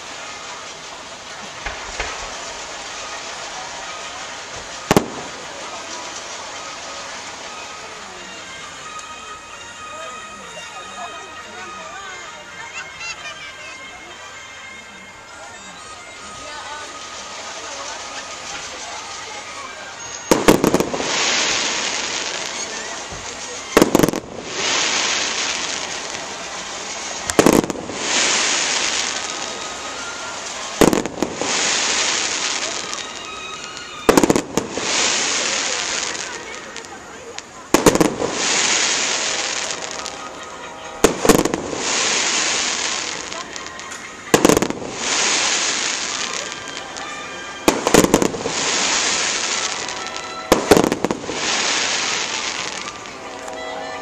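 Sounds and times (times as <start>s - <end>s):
steady rushing noise: 0.0s - 7.9s
fireworks bangs: 0.0s - 9.6s, 16.1s - 54.0s
fireworks hissing: 0.0s - 14.4s, 15.2s - 54.0s.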